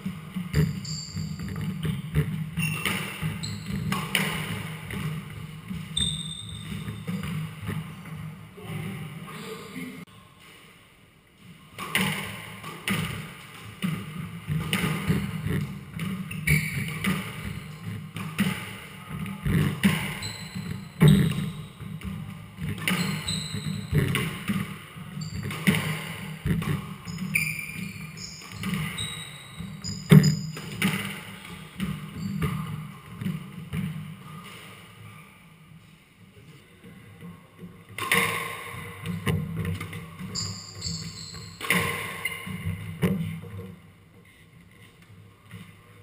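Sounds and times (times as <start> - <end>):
shoes squeaking on wooden floor: 0.4 - 8.3, 14.5 - 18.1, 19.1 - 33.4, 39.8 - 43.4.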